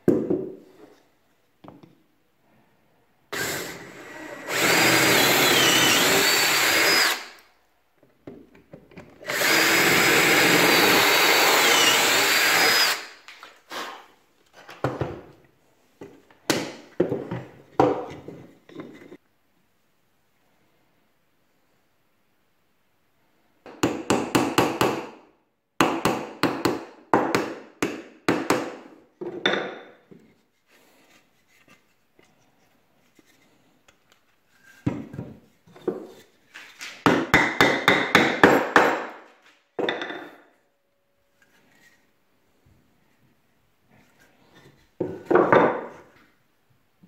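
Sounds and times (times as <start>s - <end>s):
hammer tapping wooden dowels: 37.0s - 39.2s.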